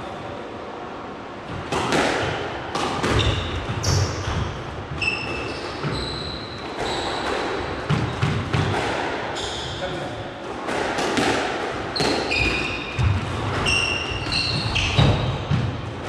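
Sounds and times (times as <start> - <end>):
squash ball cracking off racket: 1.7 - 3.3, 10.6 - 13.6
shoes squeaking on court: 3.0 - 8.4, 9.4 - 9.9, 11.9 - 15.6.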